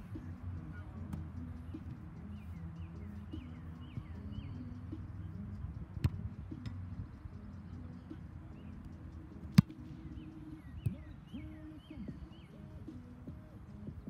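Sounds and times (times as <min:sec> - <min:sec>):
birds chirping: 0:00.0 - 0:14.0
foot kicking football: 0:06.0 - 0:06.7, 0:09.4 - 0:10.0.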